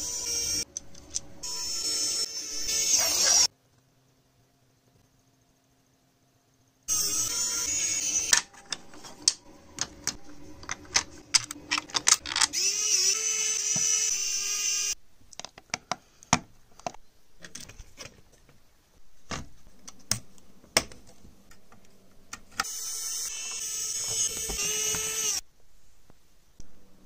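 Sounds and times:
plastic parts clicking: 8.3s - 12.6s, 15.3s - 18.5s.

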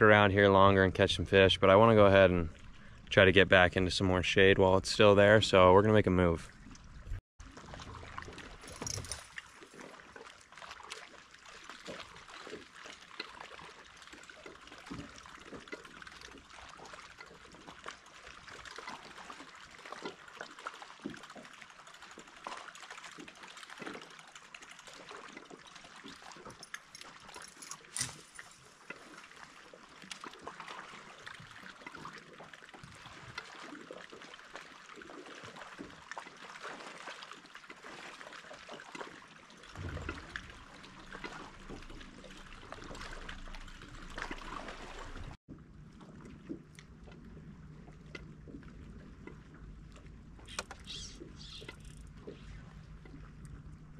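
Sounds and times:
low rumble: 0.0s - 7.2s, 39.8s - 50.4s
small waves lapping against hull: 0.0s - 53.9s.

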